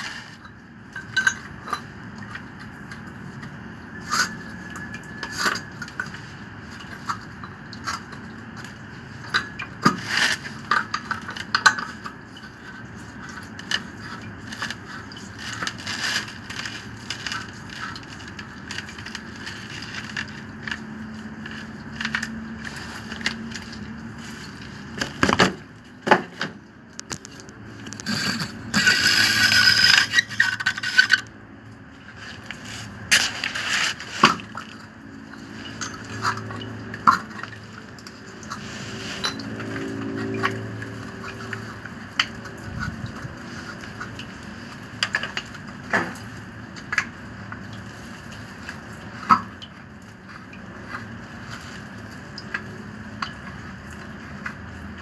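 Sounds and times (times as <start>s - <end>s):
hand tools scraping and clinking: 27.9s - 31.3s
harsh metal scraping: 27.9s - 31.3s.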